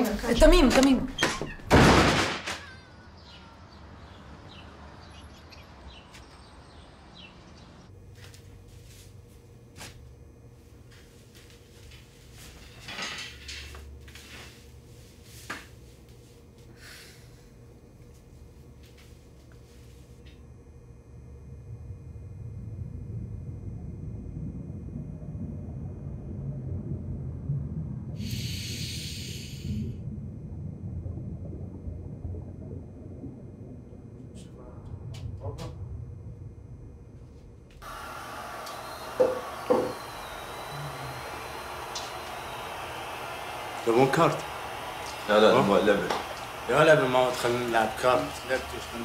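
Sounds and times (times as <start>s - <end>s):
faint room hum: 5.7s - 49.0s
low steady rumble: 15.8s - 37.8s.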